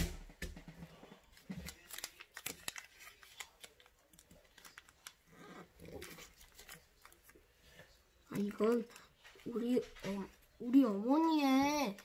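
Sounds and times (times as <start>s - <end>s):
paper folding crinkles: 1.1s - 10.6s.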